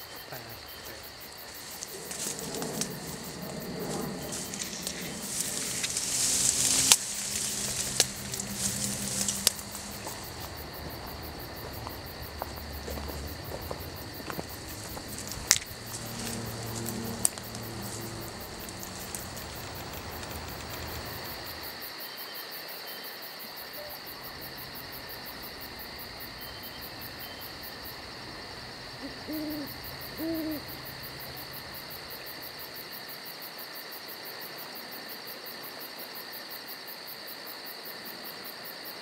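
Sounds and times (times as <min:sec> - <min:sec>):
crickets chirping: 0:00.0 - 0:39.0
rush of noise: 0:01.6 - 0:21.6.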